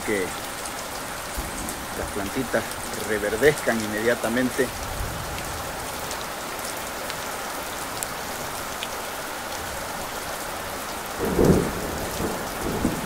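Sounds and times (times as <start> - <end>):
rain falling on trees: 0.0 - 13.0
thunder rumble: 11.2 - 13.0.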